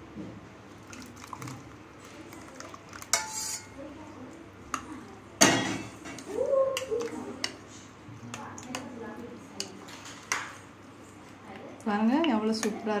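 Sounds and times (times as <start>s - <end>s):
spoon scraping glass bowl: 3.2s - 3.8s.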